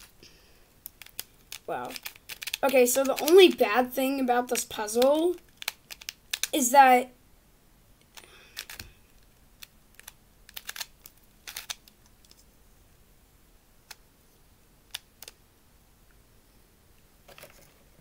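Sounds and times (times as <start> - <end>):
puzzle cube plastic clicks: 0.8 - 6.6, 8.0 - 12.5, 14.9 - 15.4.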